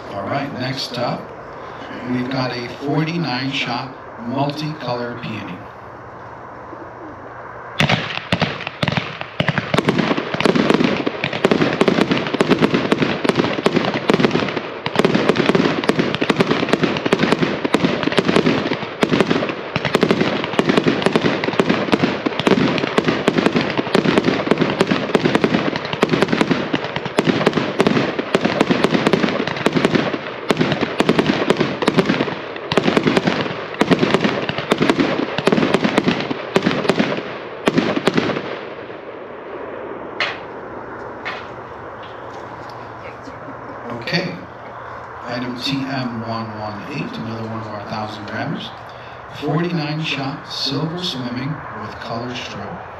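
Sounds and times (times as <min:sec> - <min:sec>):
firework launches and bursts: 0:07.8 - 0:38.4.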